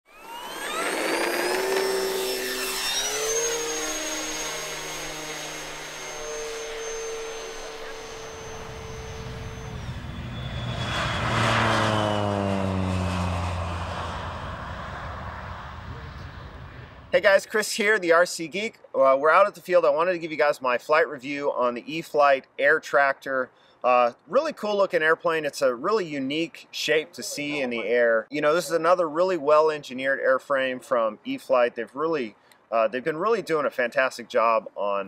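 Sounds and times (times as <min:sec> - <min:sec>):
aircraft engine whine: 0:00.1 - 0:17.2
aircraft passing by: 0:00.1 - 0:17.4.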